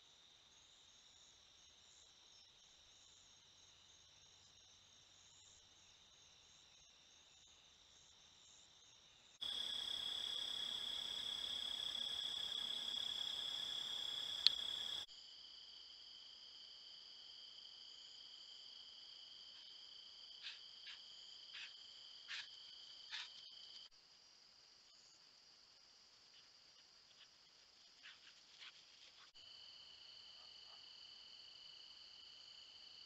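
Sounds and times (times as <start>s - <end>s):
night insects trilling: 8.4s - 15.1s.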